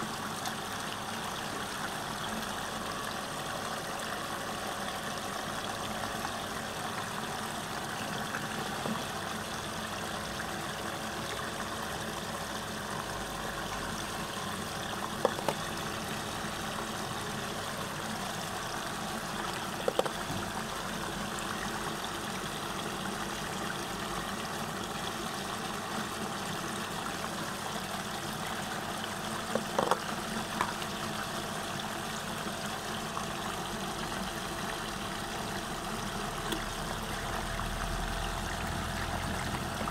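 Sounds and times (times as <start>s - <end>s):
mechanical hum: 0.0s - 39.9s
water rushing and gurgling: 12.4s - 20.9s.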